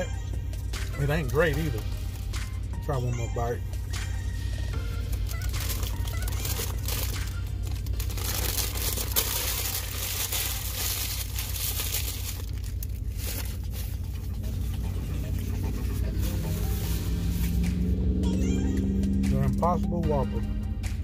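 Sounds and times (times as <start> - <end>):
steady low hum: 0.0 - 19.2
paper wrapper crinkling: 5.0 - 17.4.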